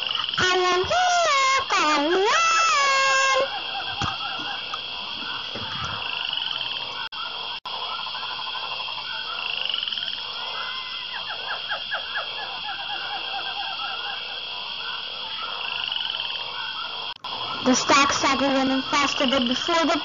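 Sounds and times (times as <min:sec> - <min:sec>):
steady high hum: 0:00.0 - 0:09.4, 0:17.2 - 0:20.0
frogs croaking: 0:00.0 - 0:20.0.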